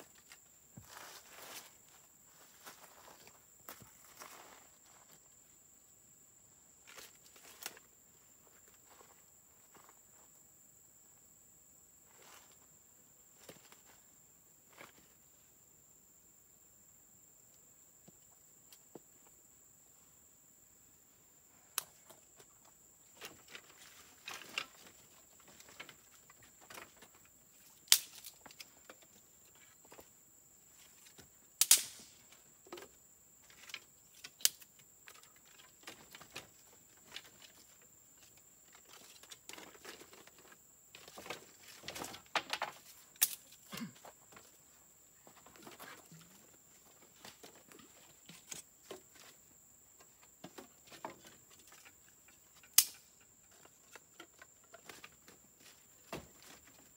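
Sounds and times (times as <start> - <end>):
wood cracking and knocking: 38.7 - 44.4.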